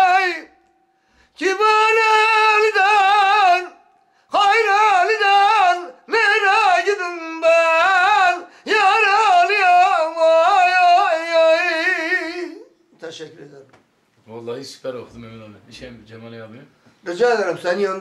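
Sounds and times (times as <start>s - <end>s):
man singing unaccompanied: 0.0s - 13.6s, 17.0s - 18.0s.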